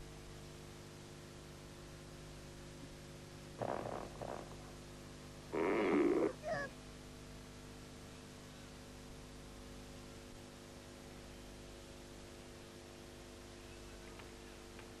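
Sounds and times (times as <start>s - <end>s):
low hum of held tones: 0.0s - 15.0s
faint hiss: 2.4s - 6.7s.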